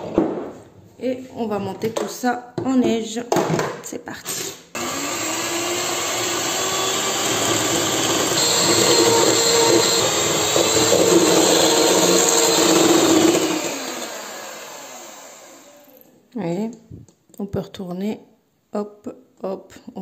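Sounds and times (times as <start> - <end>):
electric hand mixer whine: 4.8 - 16.1.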